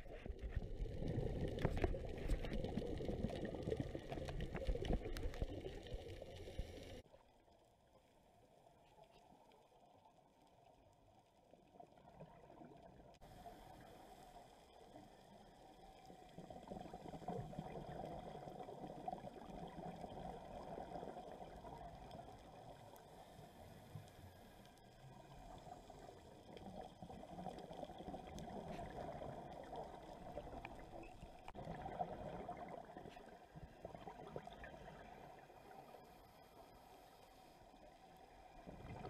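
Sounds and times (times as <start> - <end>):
muffled underwater bubbling: 0.0 - 7.0, 24.9 - 36.8, 38.2 - 39.0.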